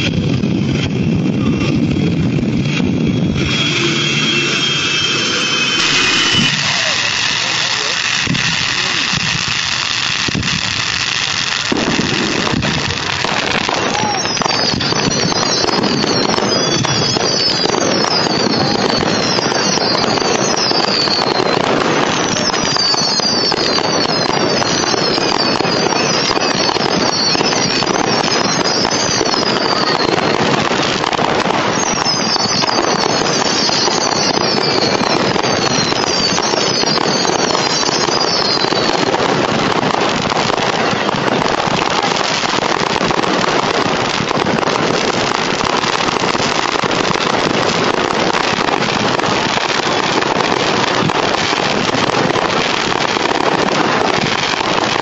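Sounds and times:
fireworks crackling and popping: 0:00.0 - 0:55.0
fireworks whistling: 0:00.0 - 0:55.0.

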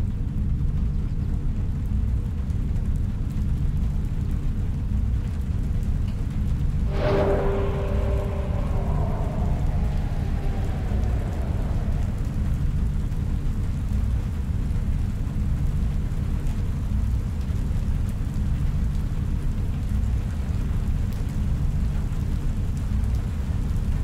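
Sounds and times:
deep rumbling drone: 0:06.8 - 0:13.8
soft sustained synth tone: 0:06.9 - 0:13.2.

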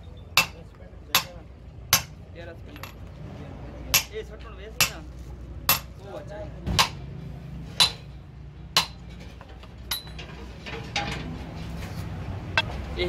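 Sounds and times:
hammer striking metal: 0:00.4 - 0:02.2, 0:03.9 - 0:04.2, 0:04.8 - 0:05.0, 0:05.7 - 0:06.0, 0:06.7 - 0:07.0, 0:07.8 - 0:08.2, 0:08.8 - 0:09.2.

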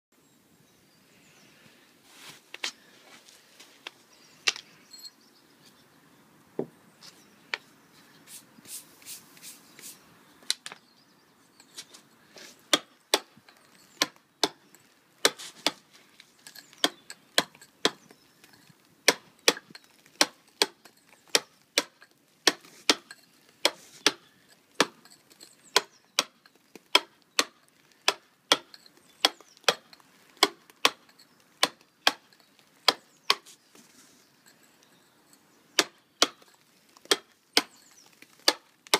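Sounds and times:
tool striking stone: 0:12.7 - 0:15.8, 0:16.4 - 0:33.4, 0:35.8 - 0:38.7.

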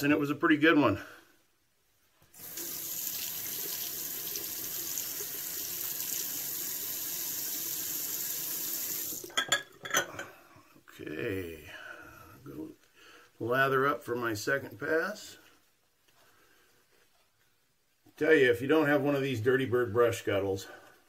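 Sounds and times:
tap water running into sink: 0:02.4 - 0:09.4.

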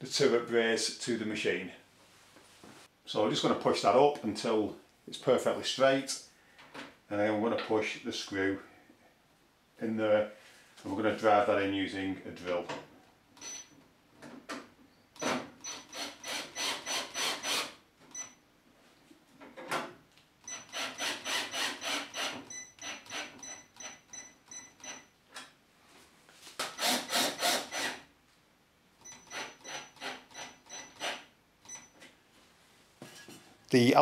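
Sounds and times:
cordless drill driving screws: 0:15.2 - 0:17.8, 0:20.5 - 0:23.4, 0:26.6 - 0:28.0, 0:29.2 - 0:31.2.

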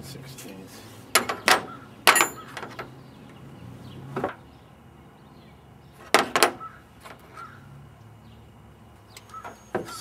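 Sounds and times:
metal tools clinking: 0:01.2 - 0:02.9.

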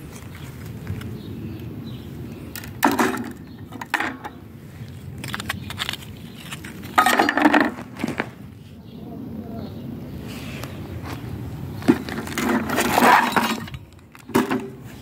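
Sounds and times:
scrap metal clanking: 0:06.6 - 0:08.3, 0:11.9 - 0:15.0
metal dropped into plastic tub: 0:07.0 - 0:07.8.

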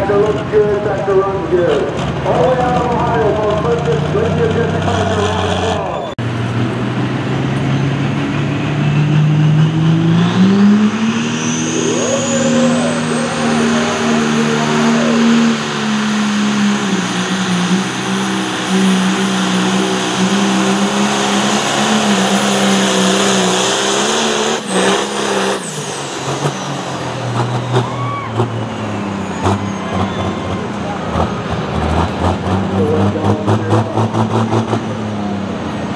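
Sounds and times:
diesel engine at full throttle: 0:00.0 - 0:35.9
high turbo whistle: 0:10.4 - 0:17.2.

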